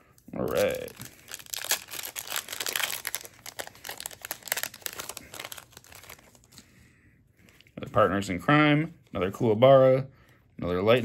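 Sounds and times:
wrapper crinkling: 0.4s - 6.7s.

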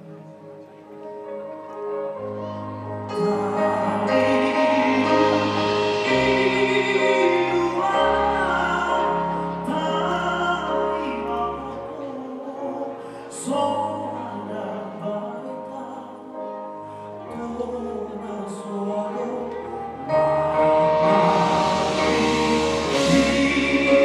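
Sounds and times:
traditional ensemble music: 1.6s - 11.8s, 19.2s - 24.0s.

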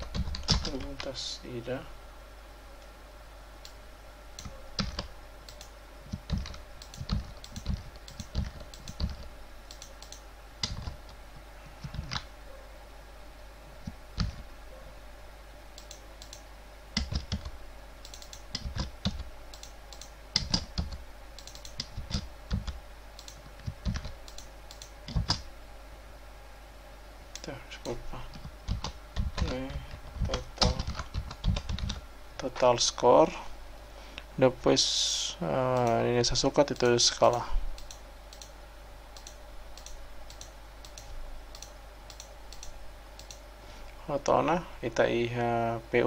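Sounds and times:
computer keyboard typing: 0.0s - 1.1s, 4.4s - 11.2s, 11.8s - 12.3s, 13.8s - 14.4s, 17.0s - 25.5s, 28.3s - 32.0s.

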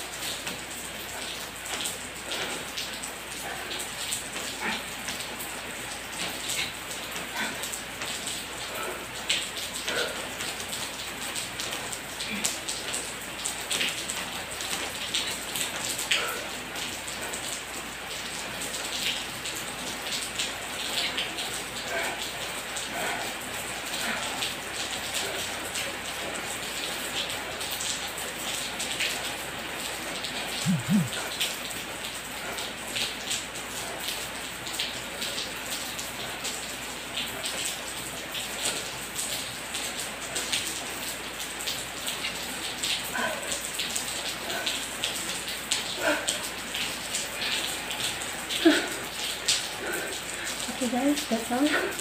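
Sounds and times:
rain pattering: 0.0s - 52.0s
short low sounds: 30.7s - 31.2s.

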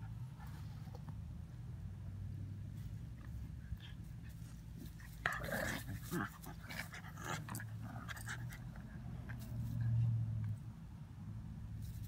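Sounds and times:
puppies play growling: 3.1s - 9.8s.

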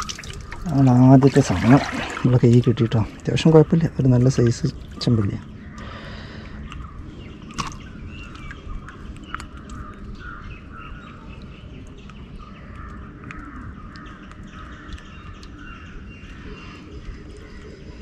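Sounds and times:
clicks and knocks in a boat: 0.0s - 5.5s
birds calling: 0.0s - 18.0s.

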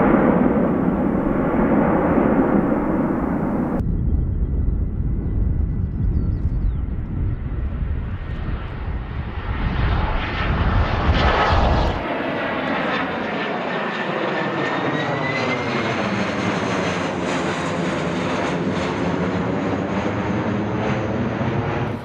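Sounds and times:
jet flying past: 0.0s - 5.6s, 6.9s - 22.0s
deep low rumble: 0.0s - 12.0s
rising engine whine: 0.0s - 12.6s.

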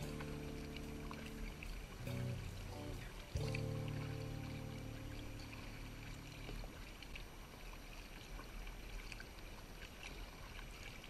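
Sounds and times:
background music: 0.0s - 6.5s
kayak paddle dipping in water: 0.0s - 11.0s
water dripping from paddle: 0.0s - 11.0s.

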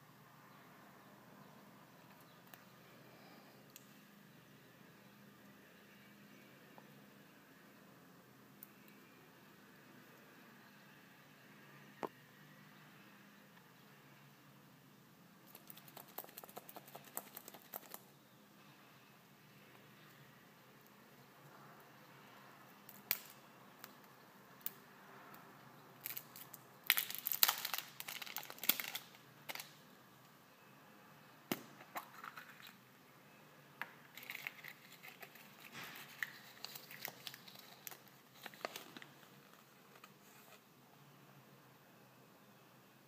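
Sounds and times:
plastic wrapper crinkling and tearing: 26.0s - 29.8s, 34.1s - 40.1s.

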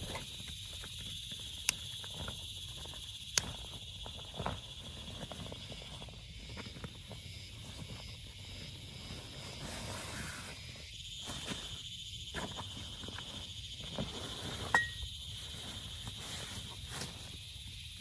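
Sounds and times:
high insect drone: 0.0s - 18.0s.

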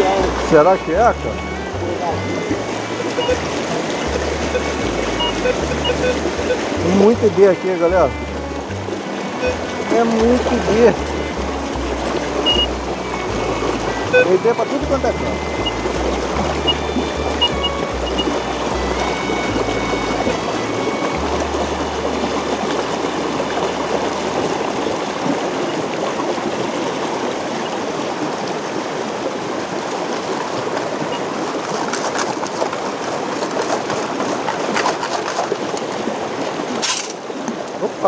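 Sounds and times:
splashes and knocks: 0.0s - 38.0s
water rushing over rocks: 0.0s - 38.0s
metal detector beeps: 1.1s - 7.1s, 9.4s - 10.5s, 12.4s - 21.3s.

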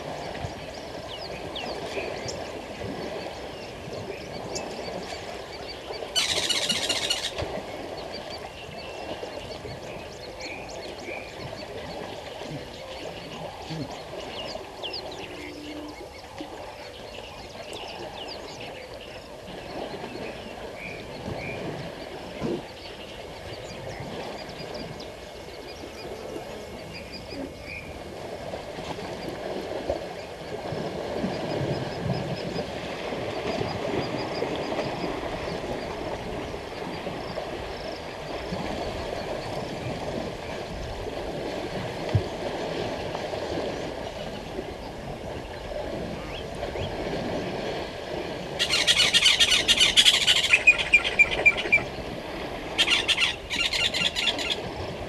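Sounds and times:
elephants splashing in water: 0.0s - 55.0s.

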